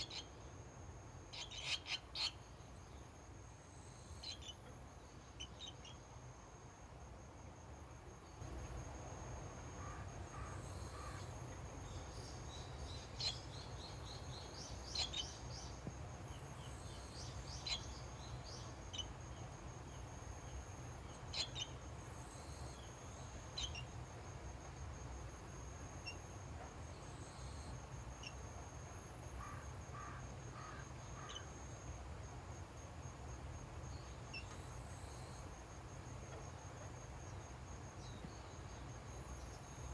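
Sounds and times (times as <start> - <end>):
bird chirps: 0.0 - 0.4, 1.3 - 2.6, 4.2 - 6.0, 9.8 - 15.8, 16.4 - 19.1, 21.1 - 21.8, 23.1 - 24.0
insect trilling: 0.0 - 0.4, 1.2 - 2.7, 16.6 - 24.1, 25.8 - 26.3.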